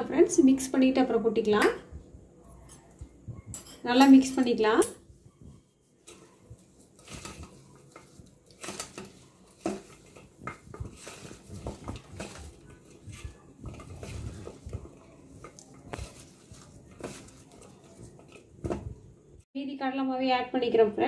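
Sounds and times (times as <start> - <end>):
hands mixing in metal bowl: 2.7 - 19.4
soft rustling of coated okra: 5.1 - 19.5.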